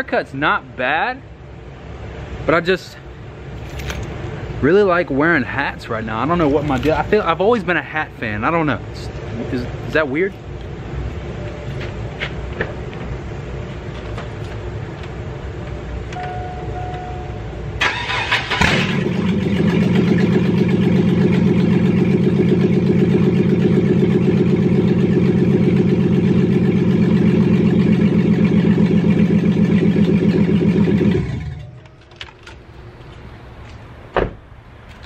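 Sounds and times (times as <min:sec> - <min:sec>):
truck engine cranking: 0:17.8 - 0:22.6, 0:28.1 - 0:33.0
truck engine idling: 0:17.8 - 0:33.2.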